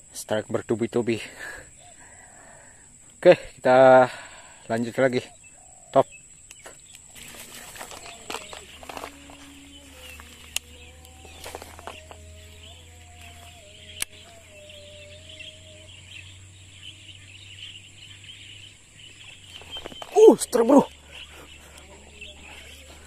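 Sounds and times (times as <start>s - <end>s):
insects chirring: 0.0s - 23.0s
faint wavering tone: 7.2s - 20.3s
sharp clicks: 10.1s - 12.2s, 13.9s - 14.3s.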